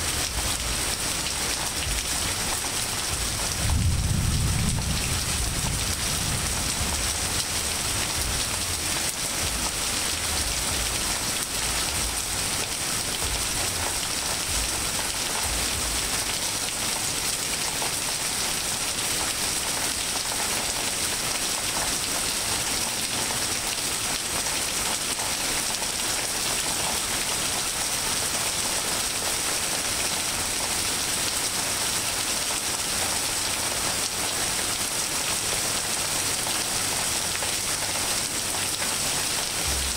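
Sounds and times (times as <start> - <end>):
rain falling on leaves and pavement: 0.0 - 39.9
thunder rumble: 3.2 - 8.7.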